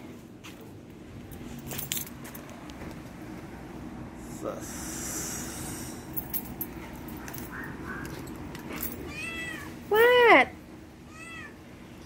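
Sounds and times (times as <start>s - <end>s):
cat meowing: 9.0s - 9.8s, 11.1s - 11.6s.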